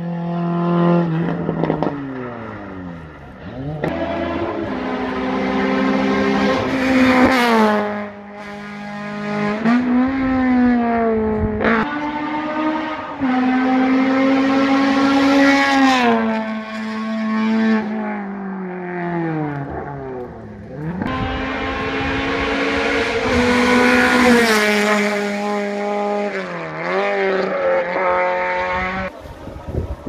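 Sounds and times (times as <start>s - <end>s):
rally car engine at full throttle: 0.0s - 30.0s.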